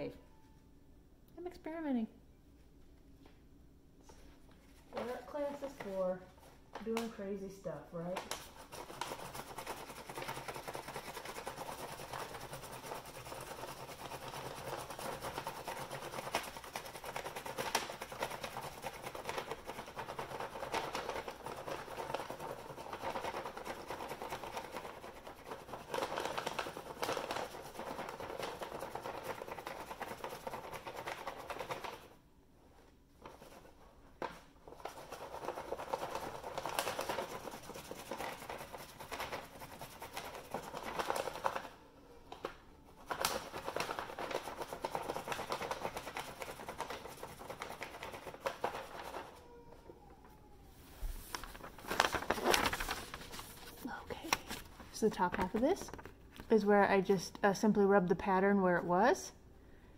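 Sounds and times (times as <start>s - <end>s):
pencil rubbing on paper: 8.4s - 31.9s, 34.8s - 41.6s.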